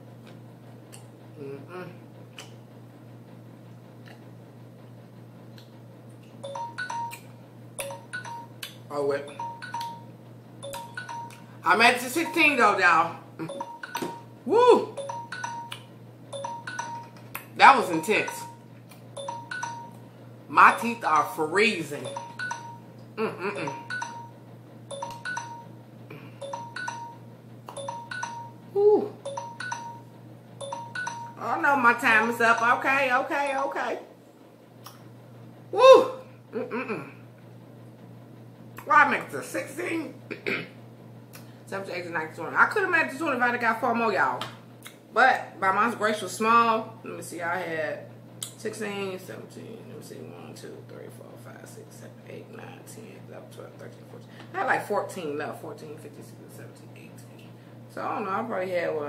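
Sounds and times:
low steady hum: 0.0 - 59.0
phone alarm chiming beeps: 6.4 - 7.2, 9.2 - 11.4, 13.4 - 14.3, 15.0 - 17.1, 19.2 - 20.0, 22.0 - 22.9, 24.9 - 25.7, 26.4 - 27.2, 27.8 - 28.6, 29.2 - 31.4.

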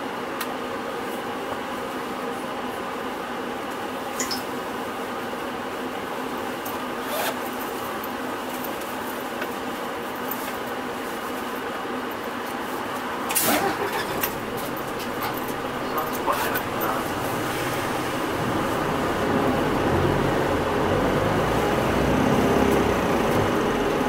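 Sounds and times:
bus engine hum: 0.0 - 24.0
light rattles: 13.5 - 19.0.

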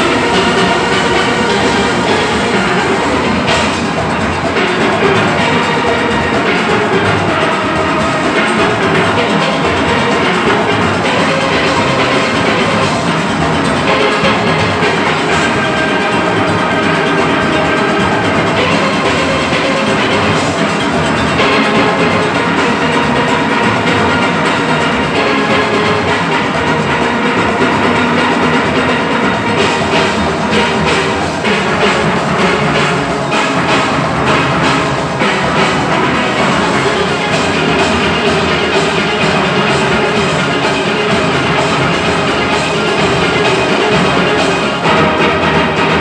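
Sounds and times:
percussion rhythm: 0.0 - 46.0
steel orchestra playing: 0.0 - 46.0.

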